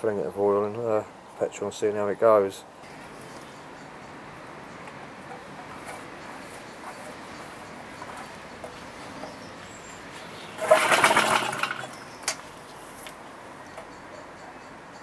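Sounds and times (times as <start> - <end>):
engine turning over: 10.5 - 12.1.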